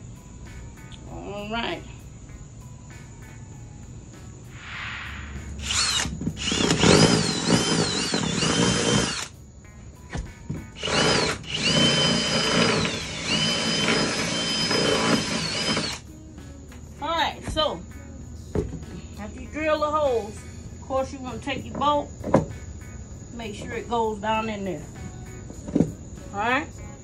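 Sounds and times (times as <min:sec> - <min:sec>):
cordless drill boring into wood: 0:05.6 - 0:09.3, 0:10.8 - 0:16.0.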